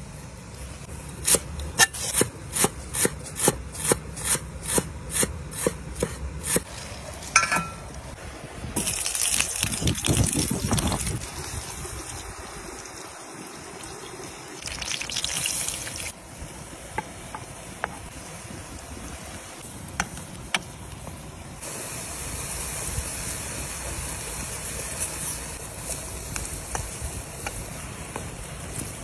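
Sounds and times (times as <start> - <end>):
food hissing in a metal pan: 21.6 - 29.0.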